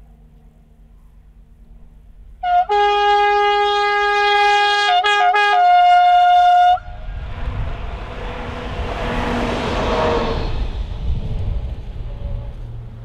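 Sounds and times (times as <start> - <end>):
locomotive engine rumbling: 0.0 - 13.0
locomotive two-tone horn: 2.4 - 7.1, 8.2 - 10.7.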